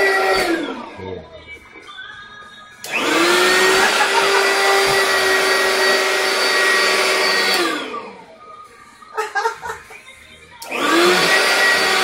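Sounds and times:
vacuum cleaner motor whine: 0.0s - 1.0s, 2.8s - 8.4s, 10.6s - 12.0s.

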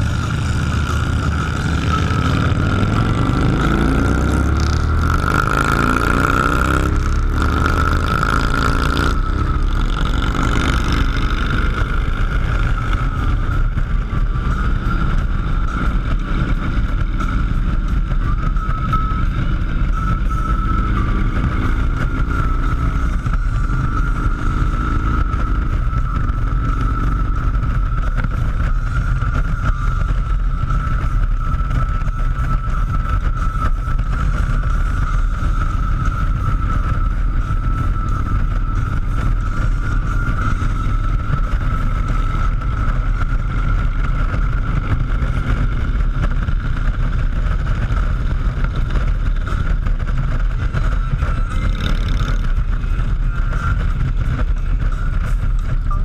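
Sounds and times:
rumbling road noise: 0.0s - 56.0s
vehicle engine running: 0.0s - 56.0s
thin whistle-like tone: 0.4s - 4.4s, 17.6s - 44.7s.

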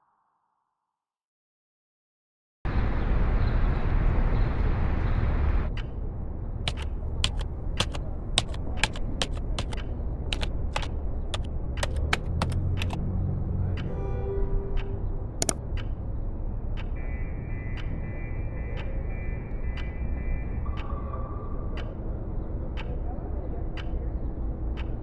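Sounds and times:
keyboard keys clicking: 6.7s - 13.0s.

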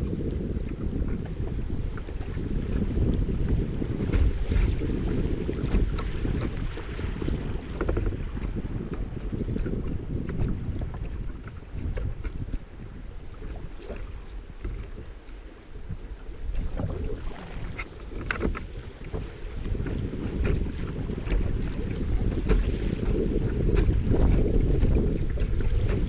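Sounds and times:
wind on microphone: 0.0s - 26.0s
river water splashing: 16.5s - 26.0s.

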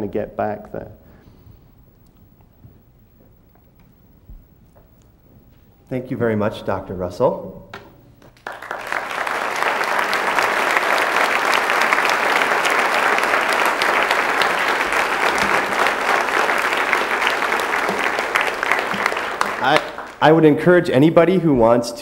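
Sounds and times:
audience applauding: 8.4s - 20.6s.

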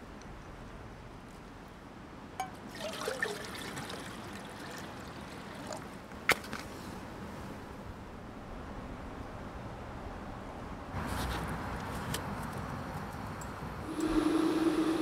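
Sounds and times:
water pouring into a pot: 2.7s - 5.8s.

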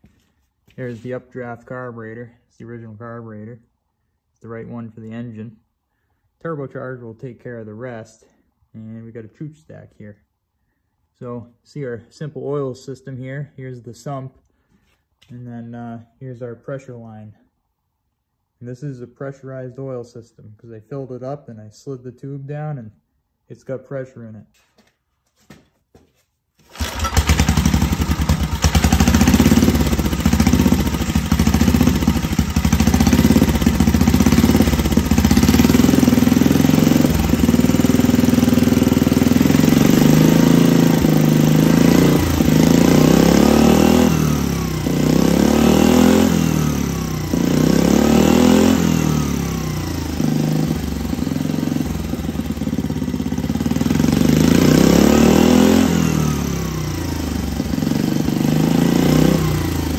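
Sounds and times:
small engine revving: 26.7s - 59.9s.

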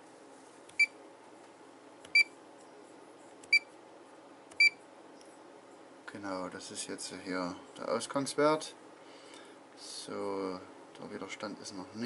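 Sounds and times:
multimeter key beeps: 2.1s - 2.3s, 4.6s - 4.8s.

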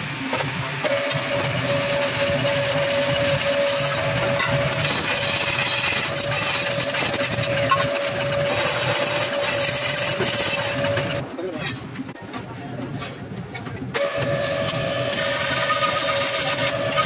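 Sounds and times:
lathe whine: 0.0s - 11.4s, 14.0s - 17.0s
tool scraping spinning metal: 0.8s - 11.9s.

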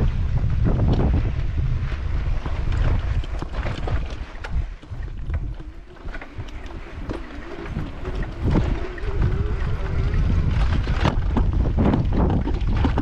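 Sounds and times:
wind buffeting microphone: 0.0s - 13.0s.

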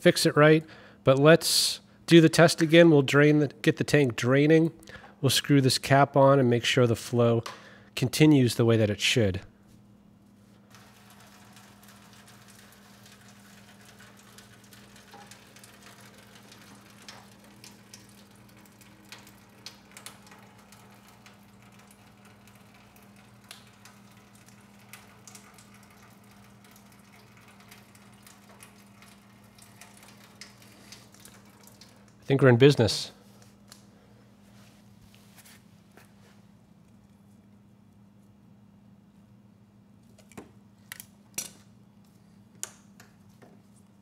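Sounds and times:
fuel dribbling into foil pan: 10.6s - 32.3s.

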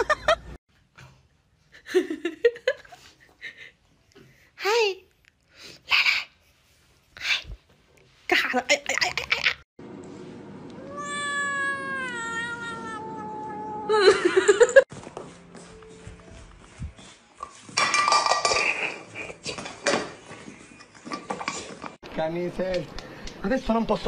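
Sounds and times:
cat meowing: 10.8s - 14.0s
cat yowling: 10.8s - 14.1s.

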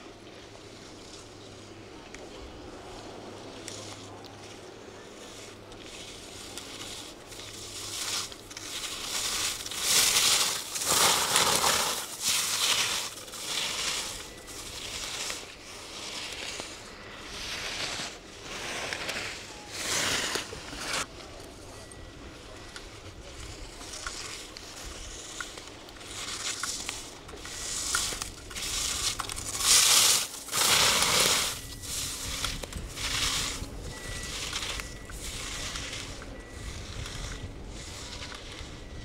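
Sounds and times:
skis scraping on snow: 0.0s - 39.0s.

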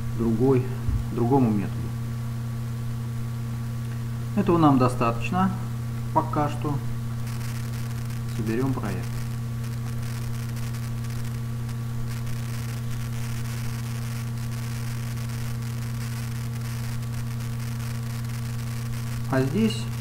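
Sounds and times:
electrical hum: 0.0s - 20.0s
faint hiss and crackle: 5.6s - 20.0s.

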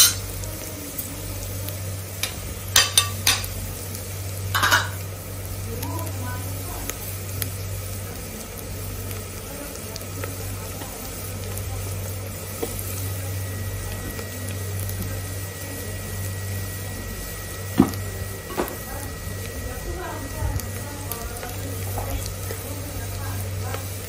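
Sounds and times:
broth bubbling in pot: 0.0s - 24.0s.

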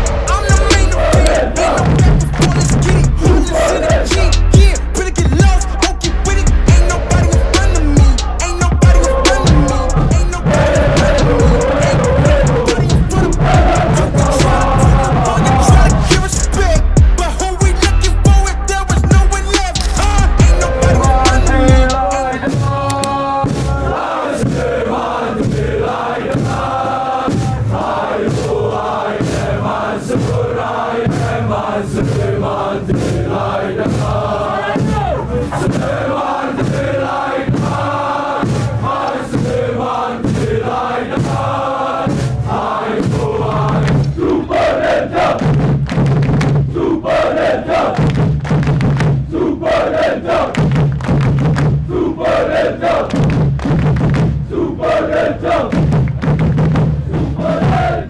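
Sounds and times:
regular drum beat: 0.0s - 24.7s
crowd chanting: 0.0s - 45.7s, 46.6s - 48.2s, 49.0s - 50.8s, 51.7s - 53.4s, 54.2s - 55.9s, 57.1s - 58.0s
regular drum beats: 0.0s - 46.9s, 47.7s - 58.0s
person leading through megaphone: 0.2s - 5.8s, 6.4s - 24.0s, 34.5s - 36.0s.

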